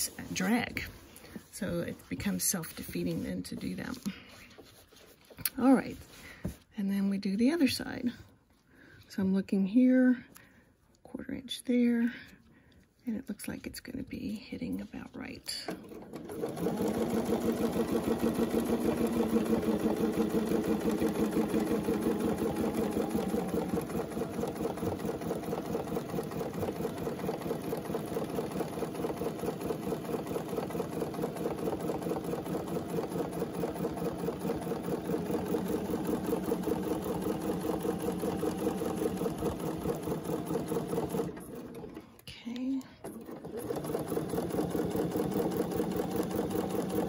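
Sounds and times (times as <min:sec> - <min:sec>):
sewing machine stitching: 0:15.6 - 0:47.0.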